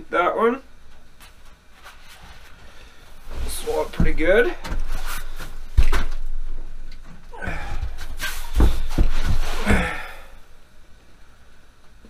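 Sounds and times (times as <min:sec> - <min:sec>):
rustling: 0:00.8 - 0:10.0.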